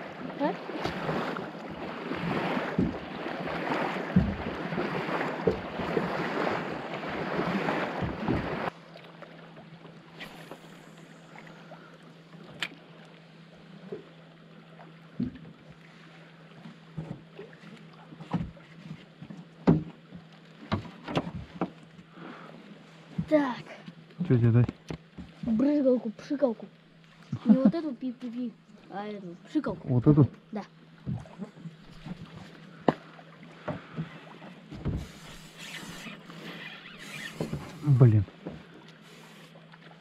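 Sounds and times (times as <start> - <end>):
steady low hum: 0.0 - 40.0
waves around a boat: 0.0 - 40.0.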